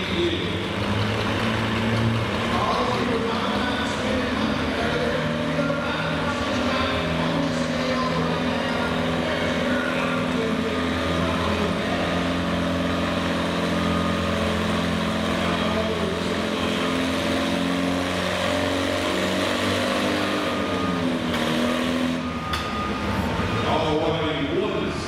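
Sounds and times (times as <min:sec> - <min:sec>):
tractor engine under load: 0:00.0 - 0:25.0.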